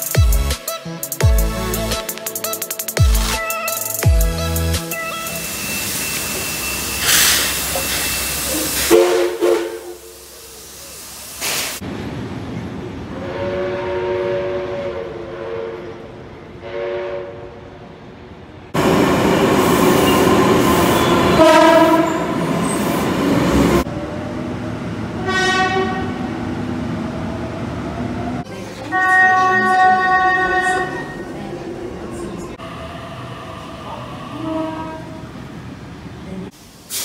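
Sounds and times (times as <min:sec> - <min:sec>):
steam locomotive hissing: 0:05.0 - 0:11.8, 0:18.8 - 0:23.9, 0:36.5 - 0:37.0
train running past: 0:05.0 - 0:37.0
train horn blasts: 0:08.8 - 0:10.2, 0:13.2 - 0:17.6, 0:20.9 - 0:22.4, 0:25.2 - 0:26.3, 0:28.9 - 0:31.2, 0:34.4 - 0:35.3.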